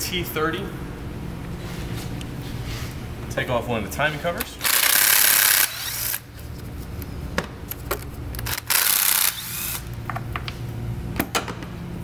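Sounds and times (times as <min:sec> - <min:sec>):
power ratchet spinning: 0:04.6 - 0:06.3, 0:08.4 - 0:10.0.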